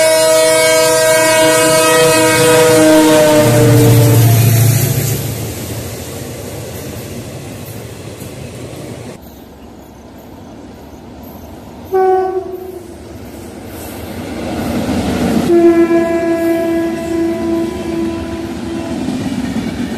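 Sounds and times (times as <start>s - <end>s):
locomotive horn blasts: 0.0s - 5.1s, 11.9s - 12.9s, 15.5s - 19.1s
train coaches rolling past: 0.0s - 19.9s.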